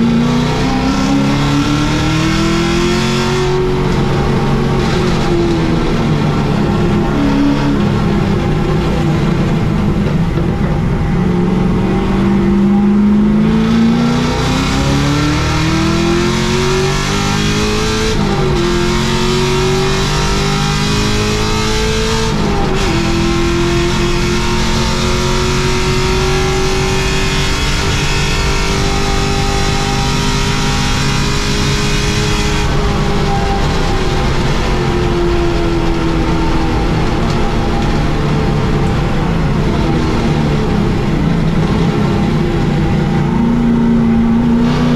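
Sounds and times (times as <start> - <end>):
race car engine accelerating: 0.0 - 44.9
road and tyre noise: 0.0 - 44.9.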